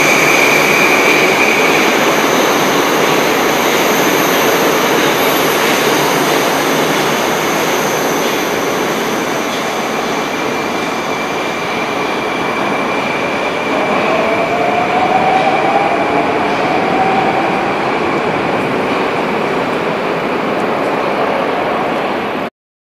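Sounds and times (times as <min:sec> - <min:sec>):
metro train wheels rushing: 0:00.0 - 0:22.5.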